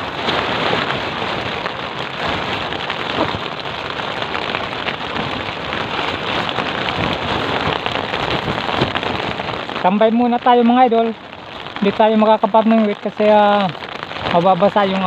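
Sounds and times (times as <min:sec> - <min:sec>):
rain pattering on plastic sheet: 0:00.0 - 0:15.0.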